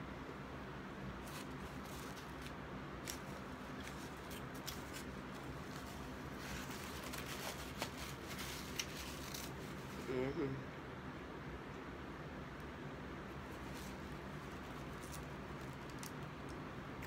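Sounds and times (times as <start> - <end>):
cardboard packaging crackles: 1.2 - 10.0.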